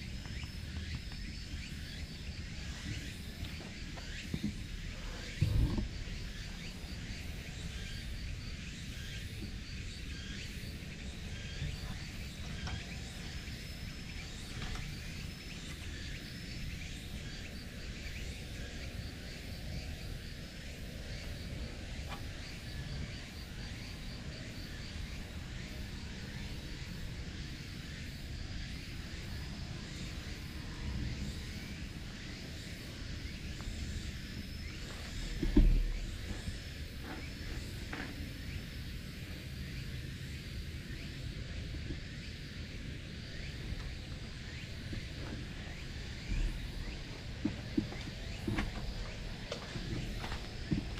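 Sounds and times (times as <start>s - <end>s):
insects chirping: 0.0s - 50.9s.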